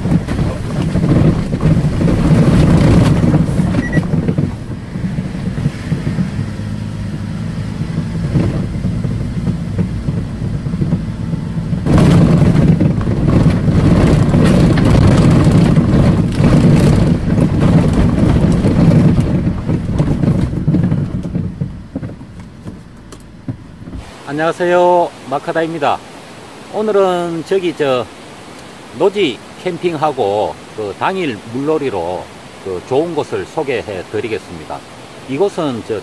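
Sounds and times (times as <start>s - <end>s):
car engine running: 0.0s - 26.0s
tyres on gravel road: 0.0s - 36.0s.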